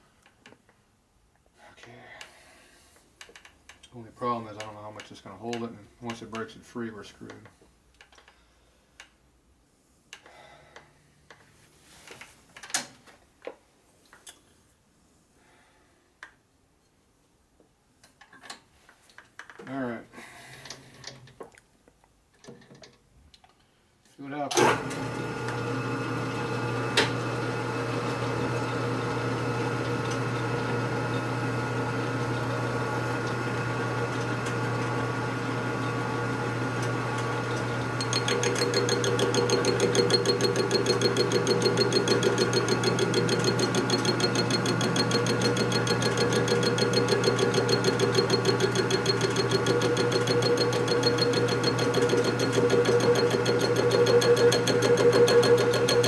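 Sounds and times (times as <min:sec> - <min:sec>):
machine tool motor hum: 0:37.4 - 0:56.0
rhythmic cutting chatter: 0:38.0 - 0:56.0.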